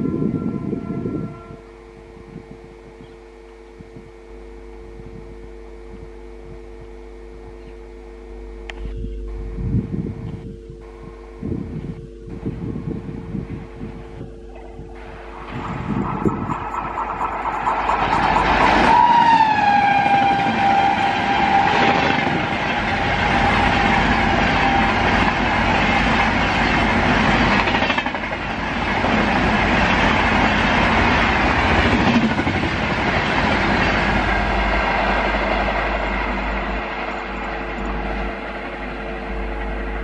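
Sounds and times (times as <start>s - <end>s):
locomotive horn: 0.0s - 3.0s, 10.3s - 26.2s
train coaches rushing past: 15.0s - 40.0s.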